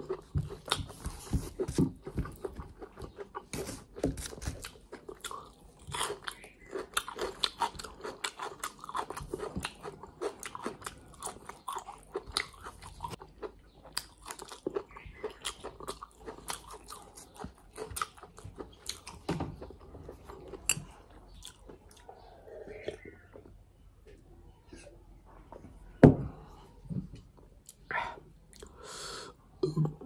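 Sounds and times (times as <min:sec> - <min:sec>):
close-up chewing: 0:00.0 - 0:23.5.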